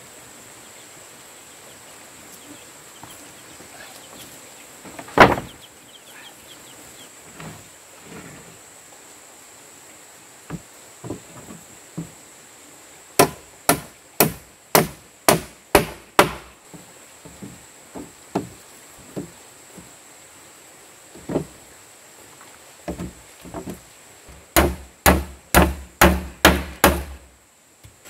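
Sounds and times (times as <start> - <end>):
light wooden knocks: 10.5 - 12.2, 15.8 - 20.0, 21.1 - 21.6, 22.8 - 23.8
hammer striking wooden plank: 13.2 - 16.5, 24.5 - 27.3.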